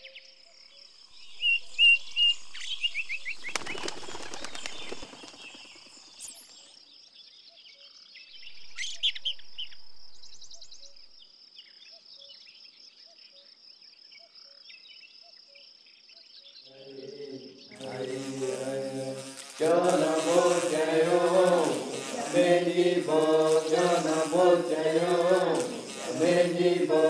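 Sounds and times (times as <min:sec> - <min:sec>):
insect trill: 0:00.0 - 0:07.2, 0:07.9 - 0:12.3, 0:16.6 - 0:27.0
bird chirps: 0:00.0 - 0:13.5
voices chanting: 0:16.7 - 0:27.0.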